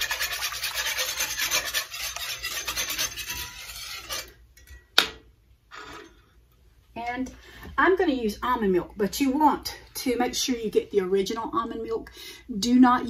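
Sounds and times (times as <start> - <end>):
whisk scraping a pan: 0.0 - 4.4.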